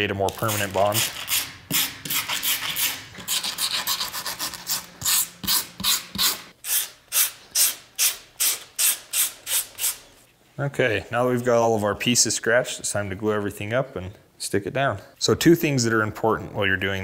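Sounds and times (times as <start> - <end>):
wire bristles scraping leather: 0.3 - 7.3.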